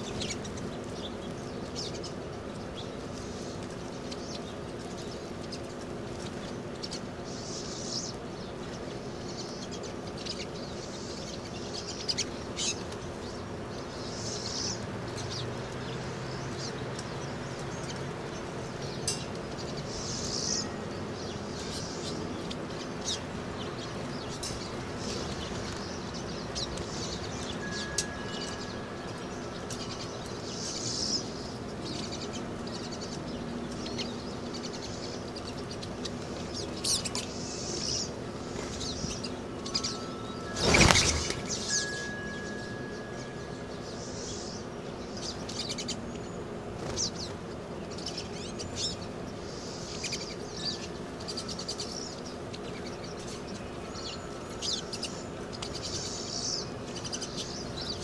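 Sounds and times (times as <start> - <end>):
birds twittering: 0.0 - 58.0
bird wing flutter: 40.5 - 41.6.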